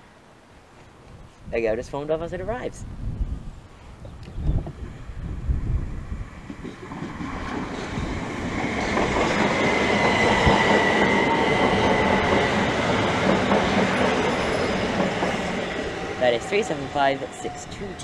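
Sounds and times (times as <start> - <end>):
electric train arriving: 4.7 - 18.0.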